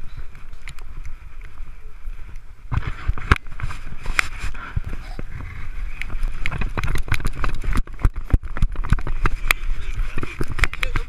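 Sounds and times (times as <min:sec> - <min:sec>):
rumble: 0:00.0 - 0:11.0
camera housing jostling: 0:02.7 - 0:11.0.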